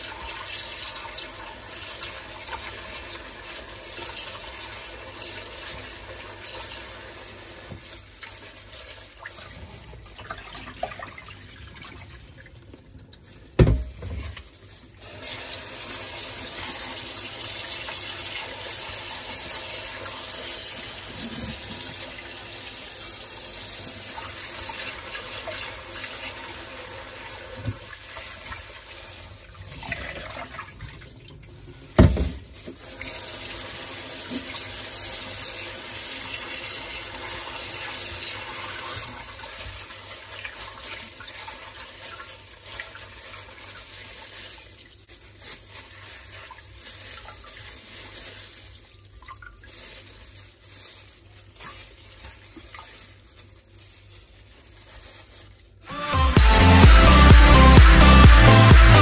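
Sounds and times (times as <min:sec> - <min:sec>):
chicken pieces being rinsed: 0:00.0 - 0:55.8.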